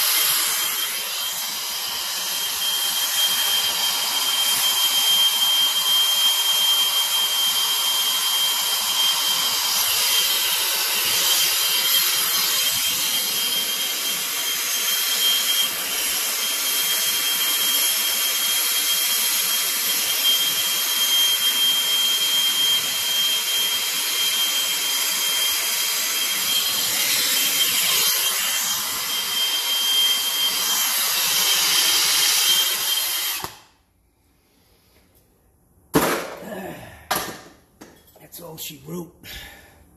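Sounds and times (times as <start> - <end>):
torch burning with loud hiss: 0.0 - 33.7
high whistle: 2.3 - 9.6.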